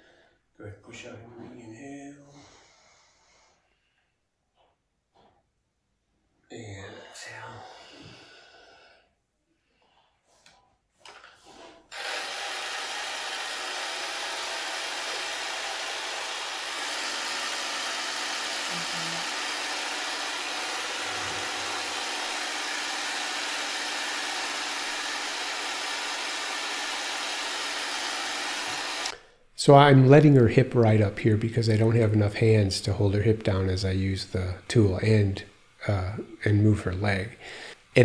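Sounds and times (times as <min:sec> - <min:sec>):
electric massager buzzing: 0:11.9 - 0:29.2.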